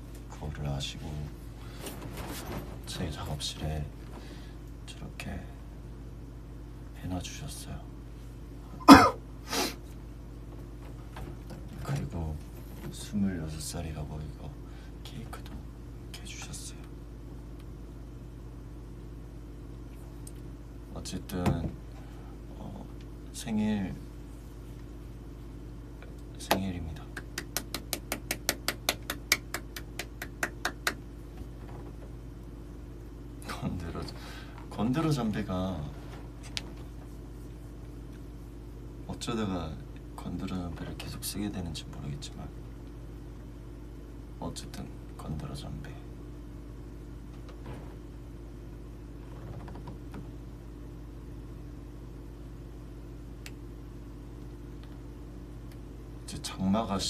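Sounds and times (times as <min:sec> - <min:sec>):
air conditioner humming: 0:00.0 - 0:57.0
man clapping hands: 0:26.4 - 0:31.1.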